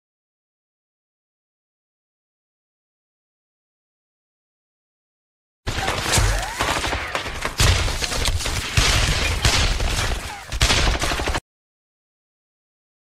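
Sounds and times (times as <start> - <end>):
rapid gunfire: 5.7 - 11.4.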